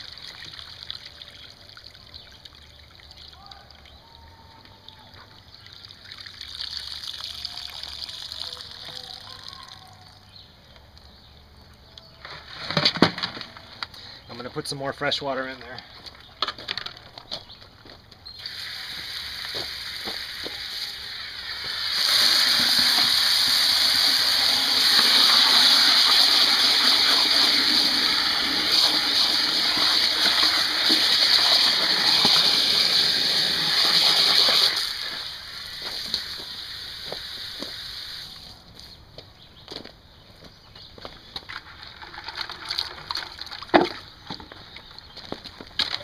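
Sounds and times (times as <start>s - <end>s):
water from hose splashing into bucket: 0.0s - 4.0s, 5.2s - 10.2s, 18.4s - 38.6s, 41.8s - 44.1s.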